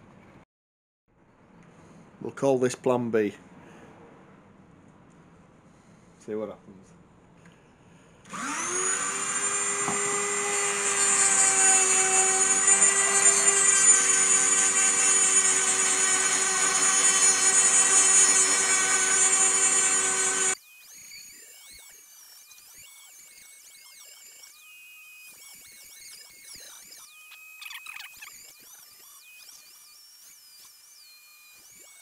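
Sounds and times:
rotary sanding tool whine: 0:08.3 - 0:32.0.

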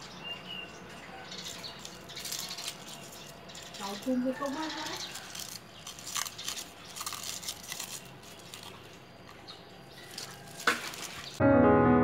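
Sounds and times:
lemongrass stalks rustling and crunching: 0:01.4 - 0:11.4.

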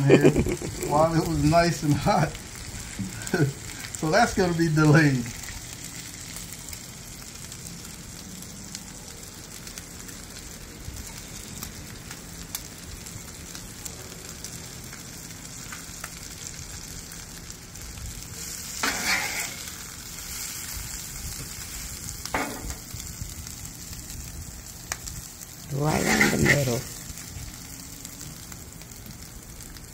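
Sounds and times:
omelet sizzling on griddle: 0:00.0 - 0:29.9
spatula scraping griddle: 0:18.4 - 0:20.5, 0:25.7 - 0:26.9.

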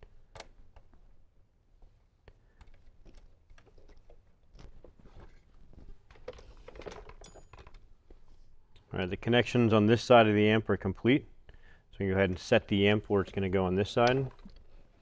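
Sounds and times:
wire handling clicks and crackling: 0:13.3 - 0:15.0.

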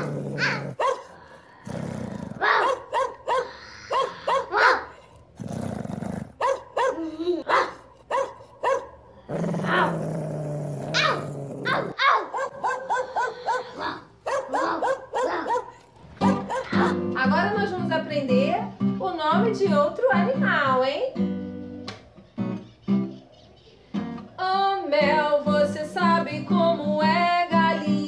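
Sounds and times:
dog barking: 0:00.0 - 0:01.2, 0:02.4 - 0:05.1, 0:06.4 - 0:09.0, 0:10.9 - 0:17.1.

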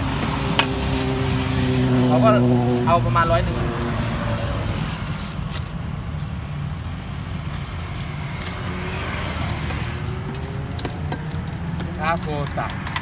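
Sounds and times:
road traffic rumble: 0:00.0 - 0:13.0
plastic bag crinkling: 0:03.4 - 0:06.2.

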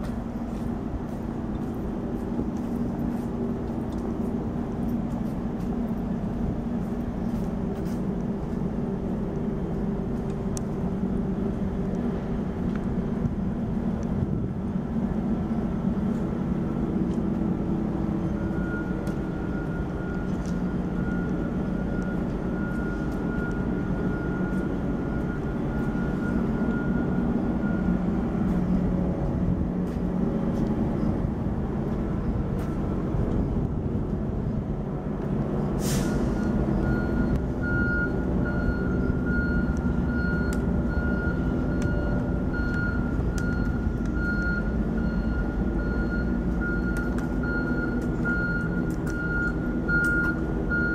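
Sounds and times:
diesel train rumble: 0:00.0 - 0:50.9
high steady warning tone: 0:17.5 - 0:28.6, 0:36.0 - 0:50.9
air hiss: 0:35.8 - 0:36.4.

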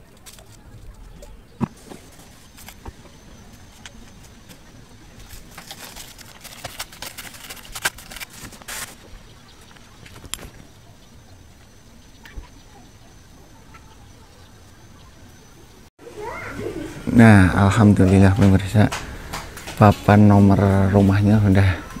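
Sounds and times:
crackly handling noise: 0:00.0 - 0:10.9.

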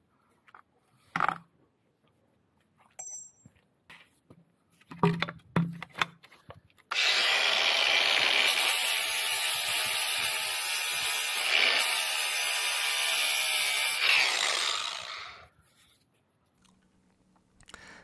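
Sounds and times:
angle grinder cutting steel: 0:06.9 - 0:15.5.

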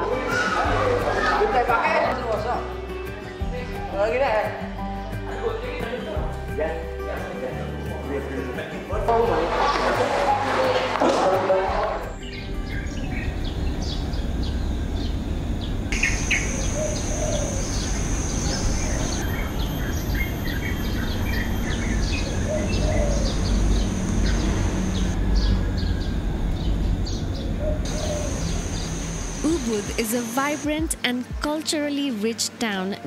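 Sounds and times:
small birds chirping: 0:12.2 - 0:30.9
high-pitched insect buzz: 0:15.9 - 0:25.2, 0:27.9 - 0:30.8.

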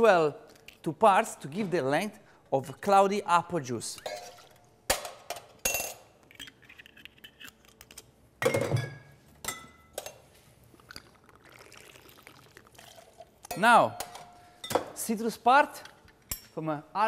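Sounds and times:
glass bottles clinking on counter: 0:08.4 - 0:10.2.

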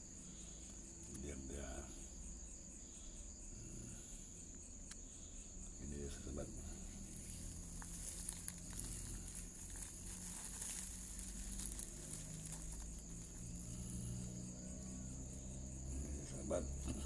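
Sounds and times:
crickets chirring: 0:00.0 - 0:17.0
rustles and clicks in dry grass: 0:05.9 - 0:17.0.

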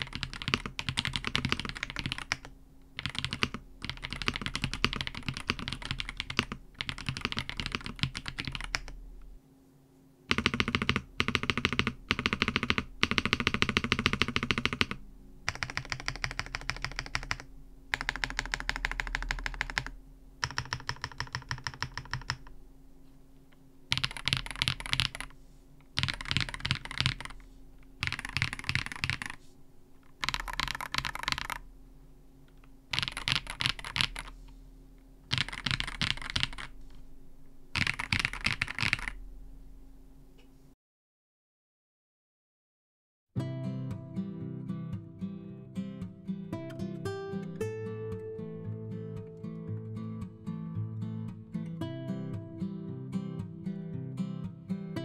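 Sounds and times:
keyboard typing: 0:00.0 - 0:09.0, 0:10.3 - 0:22.5, 0:23.9 - 0:29.4, 0:30.0 - 0:31.6, 0:32.9 - 0:34.4, 0:35.3 - 0:36.8, 0:37.8 - 0:39.2.

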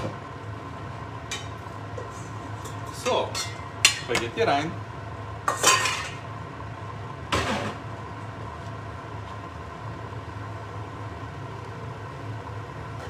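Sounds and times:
metal kitchenware clattering: 0:02.6 - 0:04.2, 0:05.5 - 0:06.2.

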